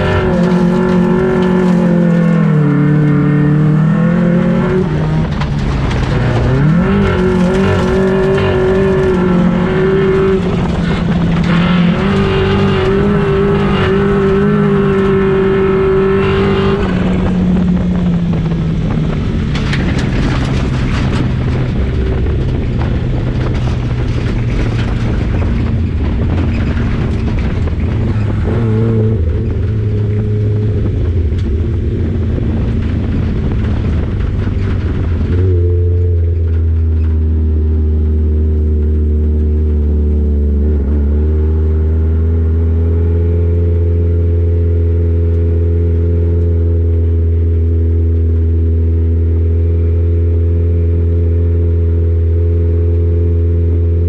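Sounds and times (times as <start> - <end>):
race car engine revving: 0.0 - 54.0.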